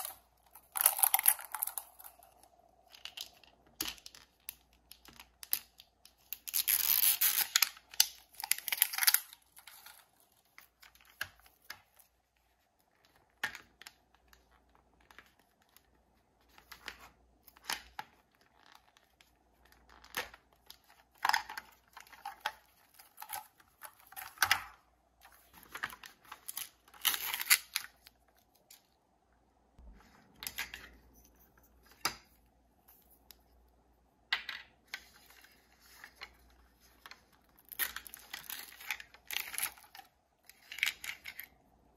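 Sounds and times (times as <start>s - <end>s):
plastic wrap crinkling and tearing: 0.0s - 2.6s.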